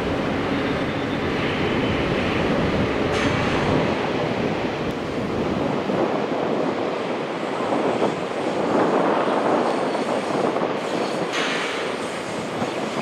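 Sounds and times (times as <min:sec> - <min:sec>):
diesel locomotive engine running: 0:00.0 - 0:06.4.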